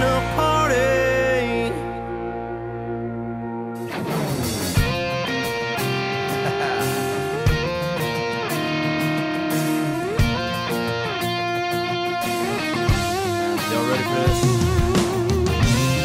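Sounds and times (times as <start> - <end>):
electric guitar bending notes: 0.0 - 16.0
slow drum beat: 4.4 - 11.1, 12.4 - 16.0.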